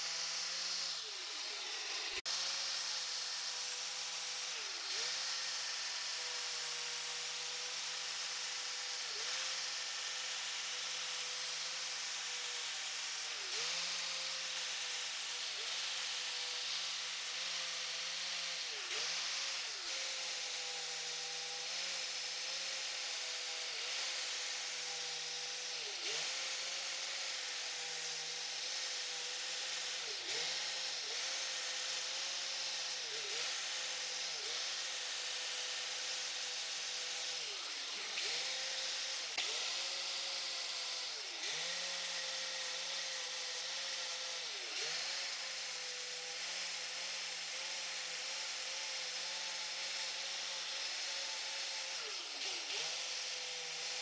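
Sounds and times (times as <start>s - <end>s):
angle grinder grinding metal: 0.0s - 54.0s.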